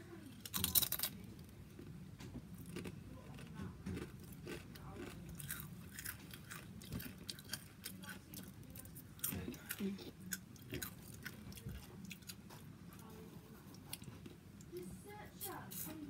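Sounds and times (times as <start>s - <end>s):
person chewing crunchy food: 1.8s - 13.0s.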